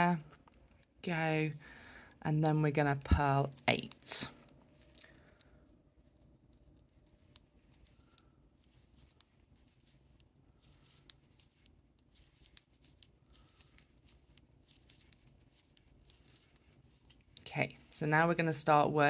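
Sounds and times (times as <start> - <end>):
knitting needles clicking: 3.1 - 18.0
yarn rubbing: 5.9 - 18.8.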